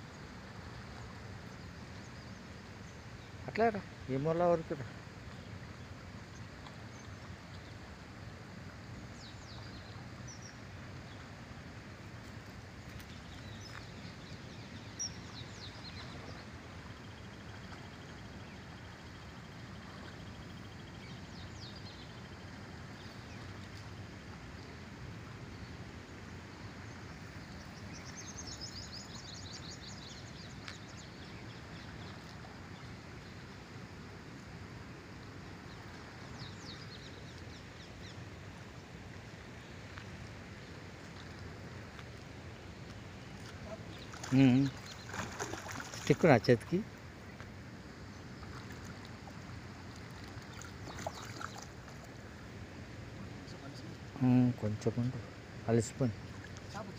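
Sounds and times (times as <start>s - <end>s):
outdoor background noise: 0.0s - 56.9s
small birds chirping: 8.9s - 11.4s, 12.0s - 34.0s, 34.9s - 56.9s.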